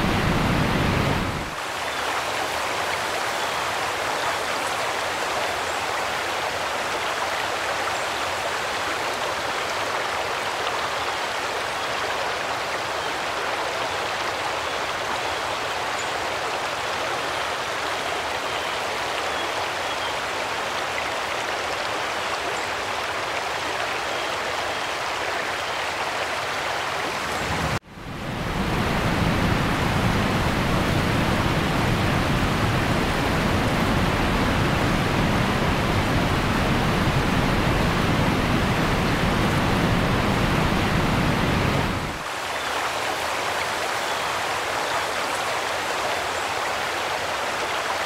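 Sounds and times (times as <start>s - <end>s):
heavy rain pouring: 0.0s - 10.4s, 26.6s - 47.8s.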